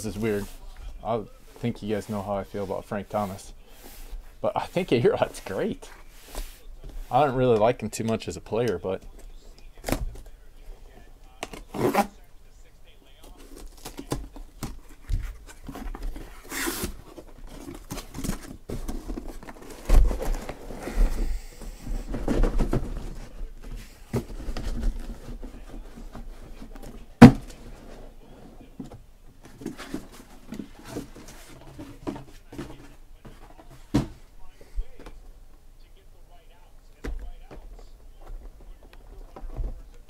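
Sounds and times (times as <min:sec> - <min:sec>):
cardboard scraping and rustling: 0:13.3 - 0:28.4, 0:29.4 - 0:34.2
boxes set down with thumps: 0:13.9 - 0:25.6, 0:26.2 - 0:27.7, 0:28.8 - 0:34.2
cardboard tearing: 0:15.3 - 0:21.4.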